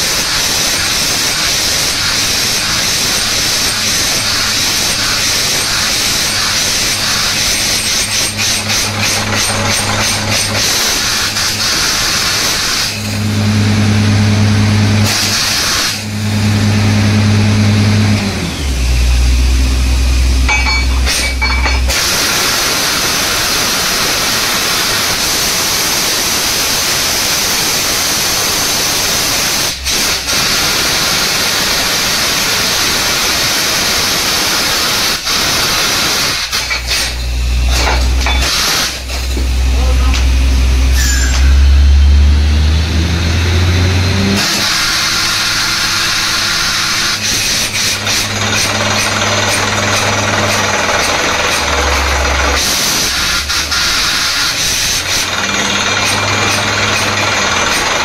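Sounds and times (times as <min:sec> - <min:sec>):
drilling rig engine hum: 0:00.9 - 0:25.4, 0:35.8 - 0:58.0
loud hissing rush: 0:21.9 - 0:36.7.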